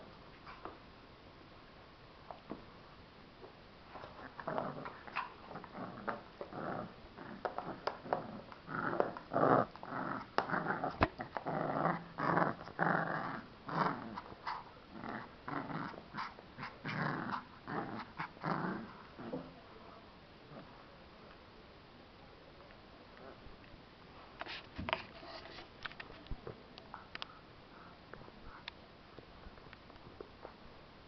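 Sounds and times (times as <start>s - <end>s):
puppy growling: 4.0s - 19.5s.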